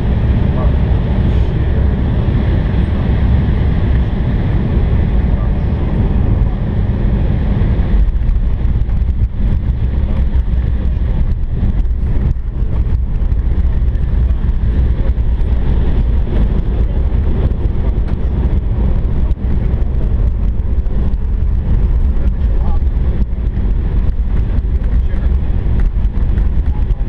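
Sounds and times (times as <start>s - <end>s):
airliner engines rumbling: 0.0s - 27.0s.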